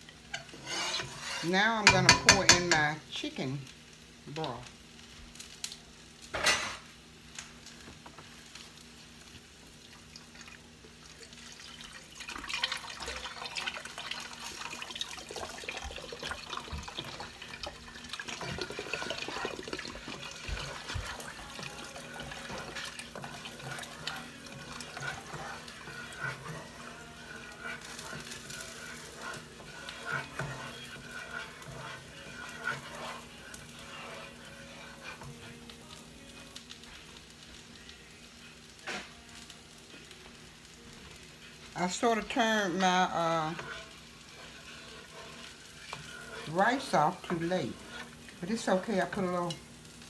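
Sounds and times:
liquid pouring into pot: 0:09.9 - 0:26.2.

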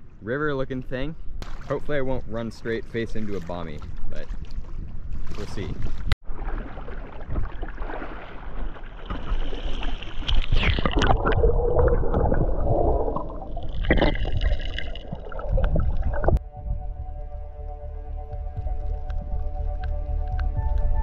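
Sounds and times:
water splashing and gurgling: 0:01.4 - 0:16.4
muffled underwater rushing and bubbling: 0:04.8 - 0:16.4
music: 0:16.4 - 0:21.0.

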